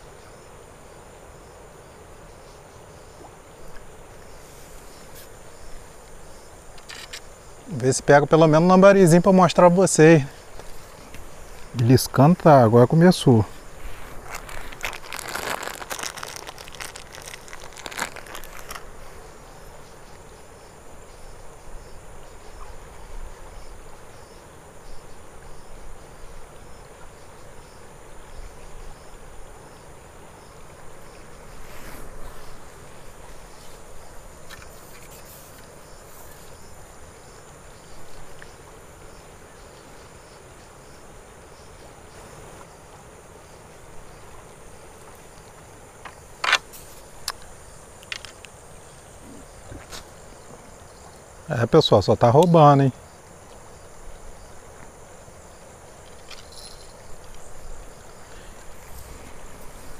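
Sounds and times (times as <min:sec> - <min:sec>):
faint high insect buzz: 0:00.0 - 0:59.9
river flowing: 0:00.0 - 0:59.9
crinkling handling noises: 0:13.6 - 0:19.0.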